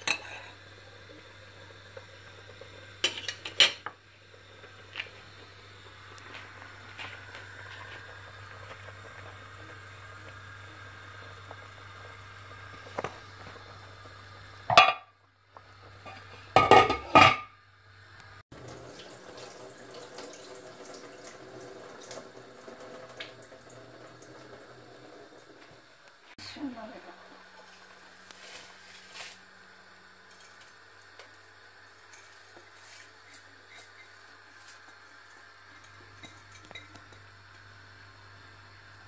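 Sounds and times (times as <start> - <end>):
metal pot lid clanking: 14.7 - 15.1, 16.1 - 17.5
water running into metal sink: 18.6 - 26.0.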